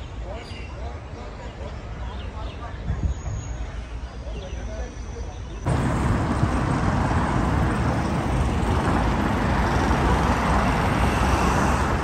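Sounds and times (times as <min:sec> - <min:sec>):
road traffic rumble: 0:05.6 - 0:12.0.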